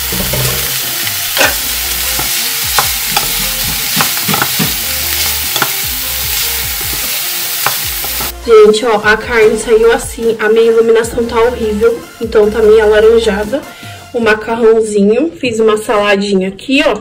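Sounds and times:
wooden spoon knocking and scraping pot: 0:00.0 - 0:01.6, 0:02.2 - 0:08.3
food sizzling in pot: 0:00.0 - 0:09.1.

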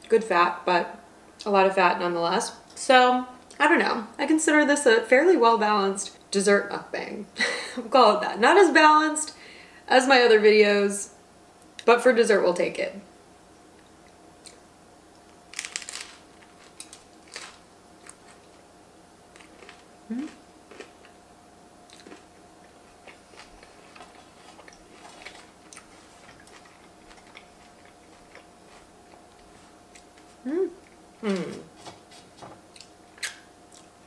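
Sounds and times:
chewing crunches: 0:15.5 - 0:18.6, 0:19.3 - 0:21.2, 0:21.8 - 0:31.9, 0:32.7 - 0:34.0.

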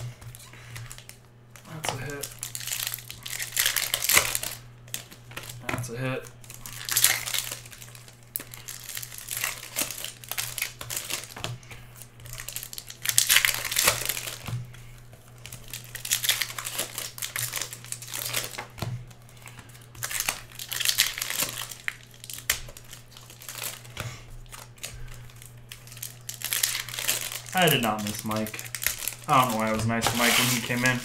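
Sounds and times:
foil packs crinkling and tearing: 0:00.0 - 0:31.0
steady low hum: 0:00.0 - 0:31.0
cards handled: 0:16.1 - 0:31.0.

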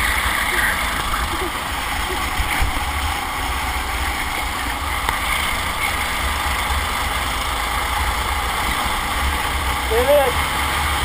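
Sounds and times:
go-kart engine running: 0:00.0 - 0:11.0.

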